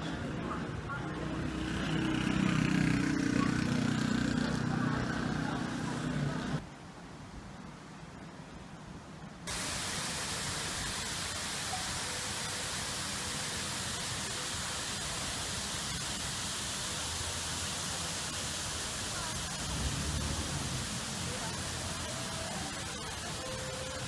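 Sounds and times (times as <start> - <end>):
falling water hiss: 9.4 - 24.0.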